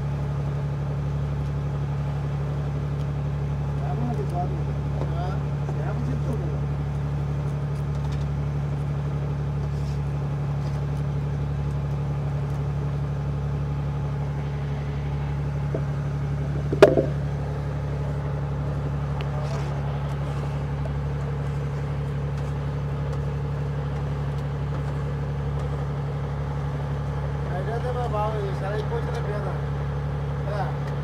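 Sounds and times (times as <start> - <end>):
boat engine humming: 0.0 - 31.0
sharp knock: 16.7 - 17.2.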